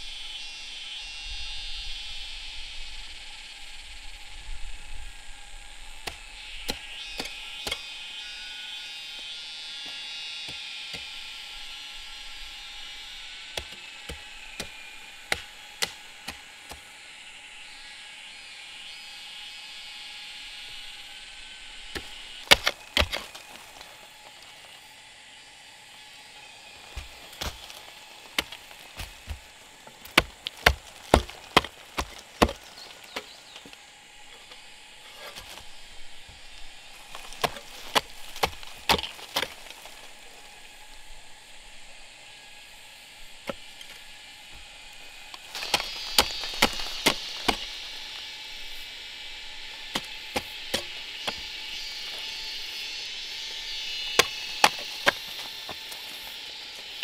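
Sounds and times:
sharp chopping strikes: 13.6s - 16.9s, 21.9s - 23.9s, 26.8s - 33.8s, 37.0s - 40.0s, 45.4s - 48.2s, 49.8s - 52.5s, 54.0s - 56.3s.

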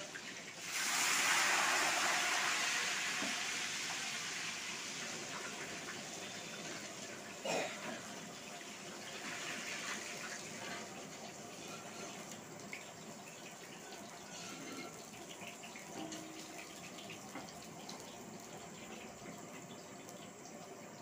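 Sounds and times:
fish deep-frying in oil: 0.0s - 21.0s.

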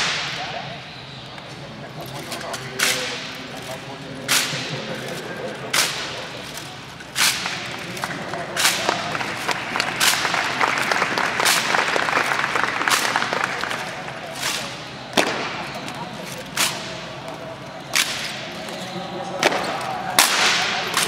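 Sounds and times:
crowd murmuring: 0.0s - 21.0s
hands slapping rifles: 7.2s - 15.7s, 19.4s - 21.0s.

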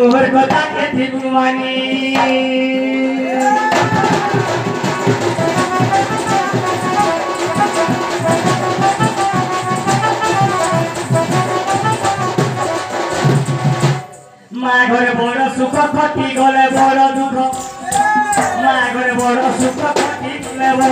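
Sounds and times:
drum beaten in fast strokes: 3.7s - 14.2s.

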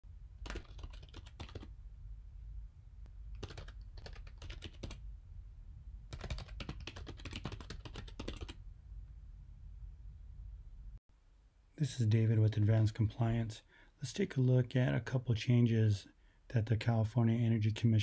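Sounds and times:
low steady hum: 0.1s - 18.0s
computer keyboard typing: 0.4s - 1.7s, 3.3s - 5.0s, 6.1s - 8.6s.

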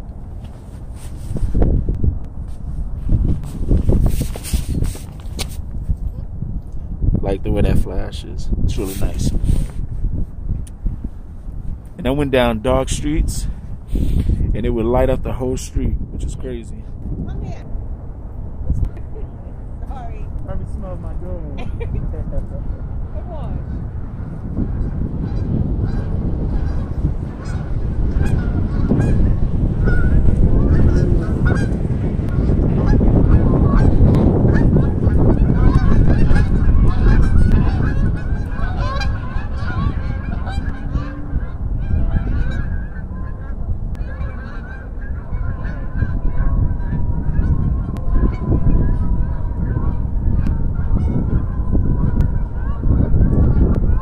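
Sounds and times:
constant low rumble: 0.0s - 54.0s
waterfowl calling: 24.7s - 54.0s.

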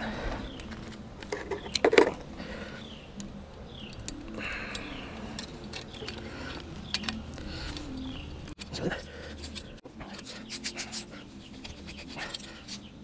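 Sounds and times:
birds chirping: 0.0s - 13.0s
sharp metallic clicks: 3.2s - 8.7s.

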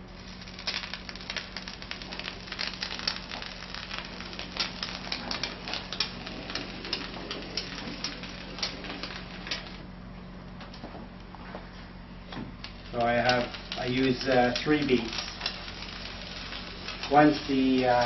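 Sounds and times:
foam gun crackling hiss: 0.0s - 9.9s, 12.1s - 18.0s
steady low hum: 0.0s - 18.0s.

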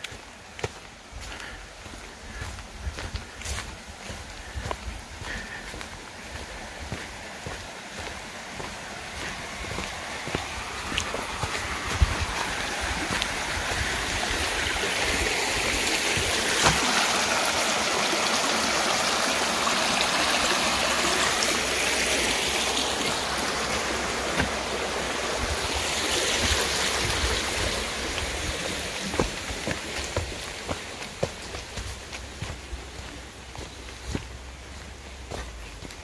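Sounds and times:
footsteps on dirt trail: 0.0s - 17.7s, 21.0s - 36.0s
creek running over stones: 0.0s - 36.0s.

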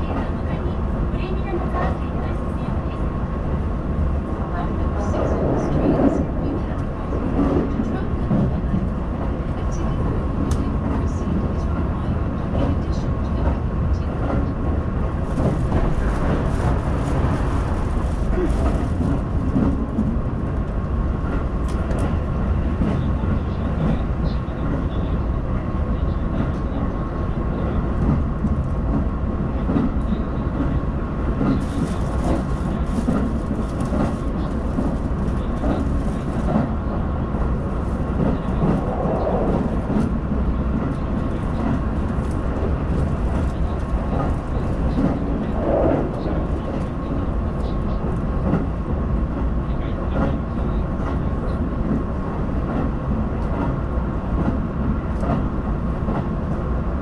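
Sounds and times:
train wheels rumbling: 0.0s - 57.0s.

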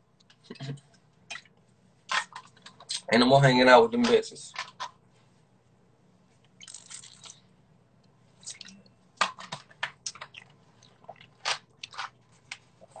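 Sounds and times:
wet mouth sounds: 6.6s - 7.4s, 8.4s - 8.9s, 10.0s - 12.0s
lip smacks and clicks: 8.0s - 13.0s.

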